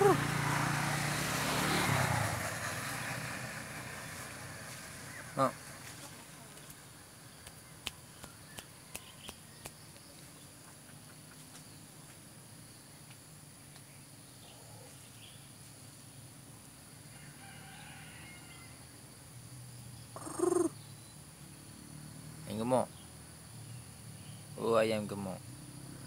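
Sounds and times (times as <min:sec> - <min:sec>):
rooster clucking softly: 0:20.2 - 0:20.7.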